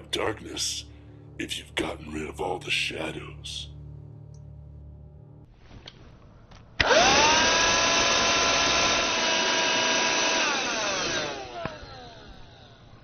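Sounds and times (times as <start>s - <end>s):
handheld vacuum cleaner motor whine: 6.8s - 13.0s
vacuum cleaner switch click: 11.0s - 11.9s.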